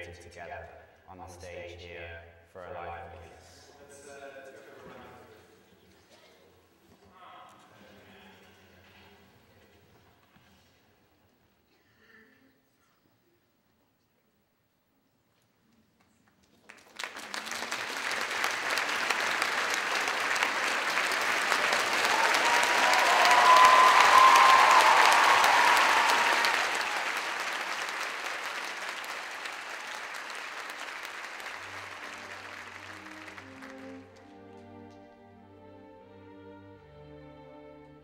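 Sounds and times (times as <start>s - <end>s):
audience applauding: 16.6s - 34.4s
faint string music: 31.6s - 38.0s.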